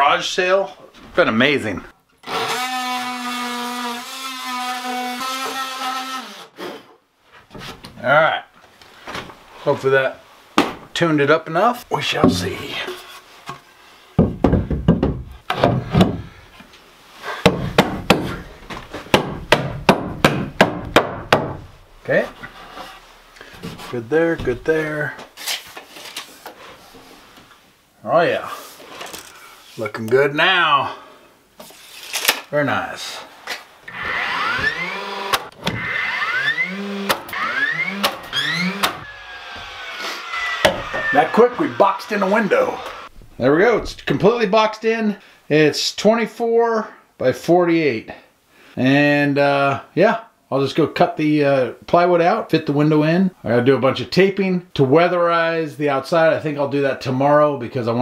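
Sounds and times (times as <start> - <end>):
hammer striking wooden board: 14.2 - 16.2, 17.4 - 18.4, 19.1 - 21.7, 40.6 - 41.1
nailer motor whine: 33.9 - 41.8.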